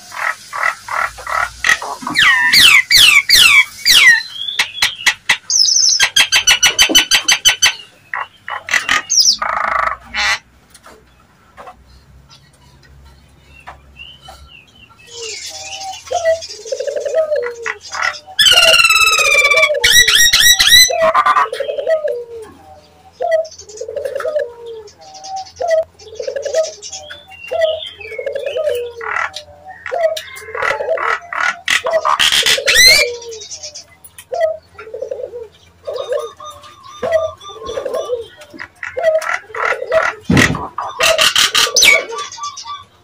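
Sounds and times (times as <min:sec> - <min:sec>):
bird chattering notes: 0:13.6 - 0:43.0
hill myna coo-like notes: 0:14.2 - 0:43.0.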